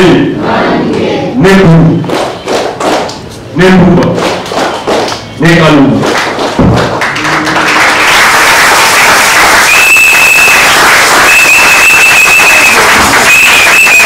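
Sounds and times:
congregation applauding: 0:06.0 - 0:14.0
long high whistle blasts: 0:09.5 - 0:14.0.

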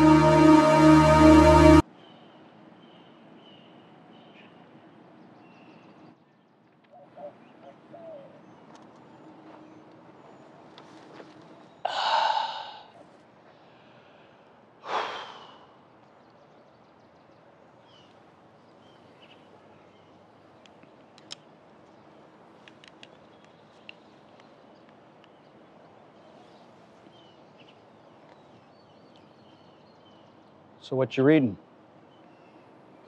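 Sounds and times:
faint outdoor background: 0:00.0 - 0:33.0
breathy exhale: 0:11.9 - 0:15.8.

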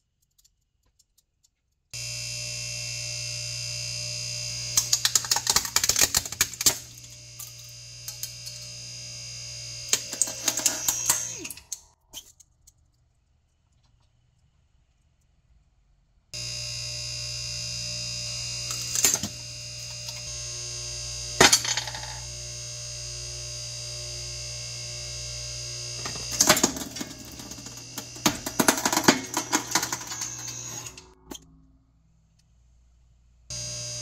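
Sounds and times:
hydraulic press motor humming: 0:02.0 - 0:11.9, 0:16.4 - 0:31.4
figurine cracking and shattering: 0:04.8 - 0:08.6.

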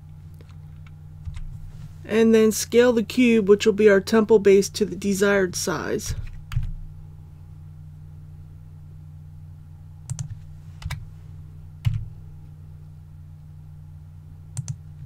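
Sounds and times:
steady low hum: 0:00.0 - 0:15.0
keyboard and mouse clicks: 0:10.1 - 0:11.0, 0:14.6 - 0:14.8.

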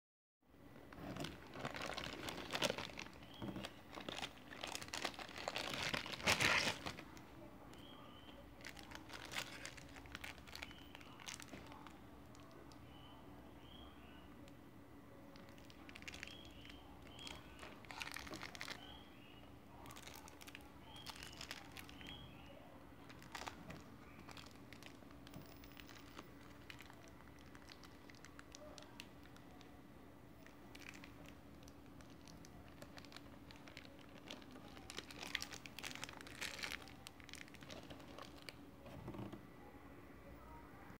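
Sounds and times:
plastic packaging crinkling: 0:00.9 - 0:07.2, 0:08.6 - 0:12.6, 0:15.4 - 0:19.0, 0:19.8 - 0:22.4, 0:23.0 - 0:29.7, 0:30.4 - 0:39.3.

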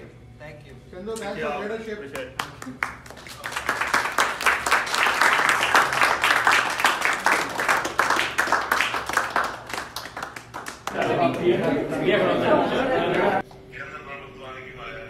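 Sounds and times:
people applauding: 0:02.1 - 0:12.4.

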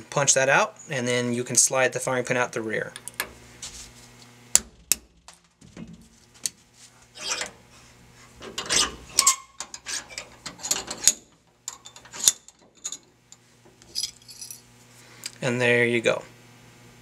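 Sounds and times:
metal rasping scrapes: 0:07.1 - 0:07.6, 0:08.5 - 0:11.1.

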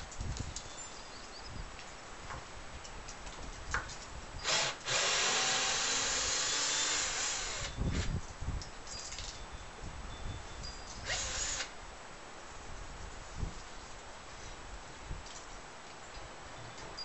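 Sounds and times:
power drill drilling into wood: 0:04.4 - 0:08.1, 0:11.1 - 0:11.7.

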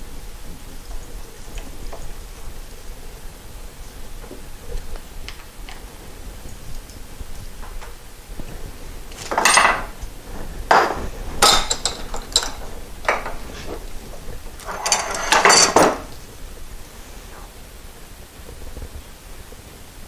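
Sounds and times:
metal tools clinking: 0:09.3 - 0:09.9, 0:11.4 - 0:13.4, 0:14.6 - 0:16.1.

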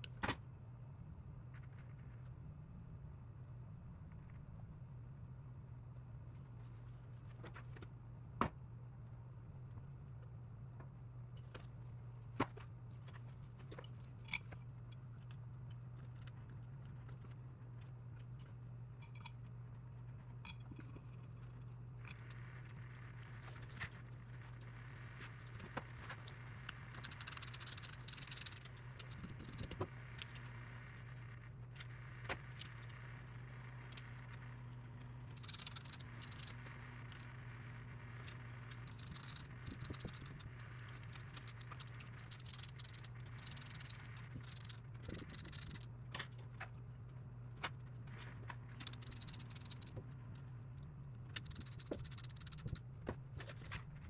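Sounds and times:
steady low hum: 0:00.0 - 0:54.0
rapid clicking bursts: 0:26.2 - 0:31.2, 0:35.3 - 0:37.4, 0:38.1 - 0:45.9, 0:48.7 - 0:50.0, 0:51.2 - 0:52.9.

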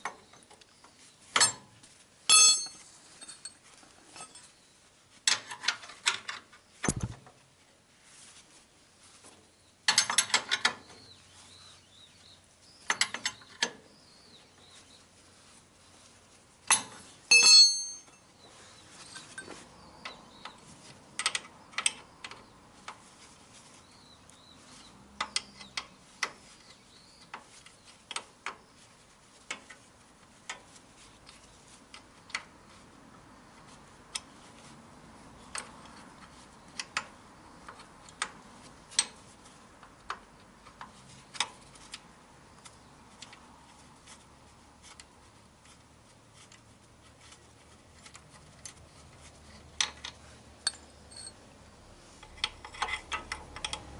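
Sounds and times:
metal tool clicks: 0:49.8 - 0:51.4.

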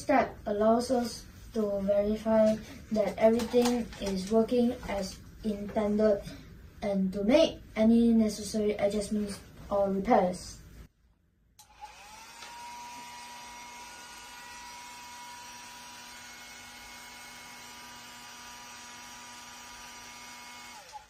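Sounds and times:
hair dryer blowing: 0:11.6 - 0:21.0.

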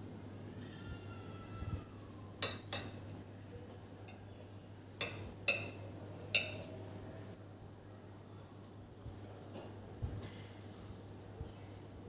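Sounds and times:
spoon clinking on ceramic bowl: 0:05.0 - 0:06.7.

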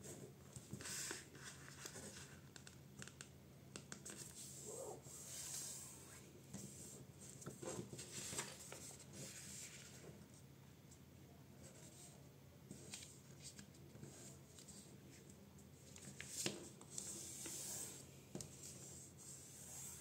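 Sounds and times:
paper rustling and crinkling: 0:07.5 - 0:10.0.

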